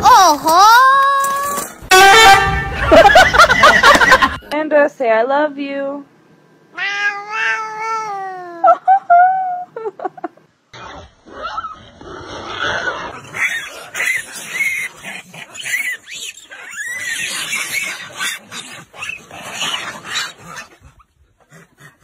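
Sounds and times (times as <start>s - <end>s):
macaques squealing calls: 13.3s - 20.6s.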